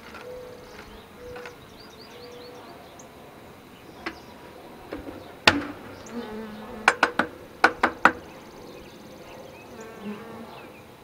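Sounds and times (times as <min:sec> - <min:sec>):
honeybees buzzing: 0:00.0 - 0:11.0
sharp knocks: 0:04.0 - 0:08.4.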